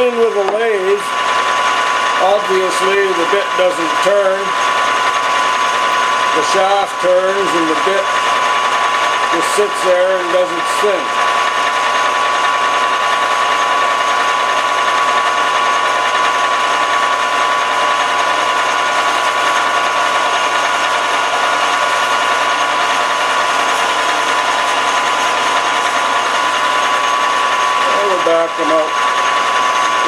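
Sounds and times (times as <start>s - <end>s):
lathe drilling machine whine: 0.0s - 30.0s.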